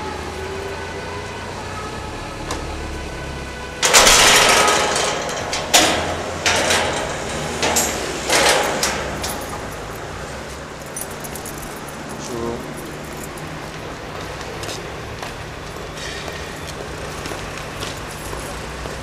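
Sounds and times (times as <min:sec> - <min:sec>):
metal gate clanking and rattling: 0:03.8 - 0:14.6, 0:15.4 - 0:17.3.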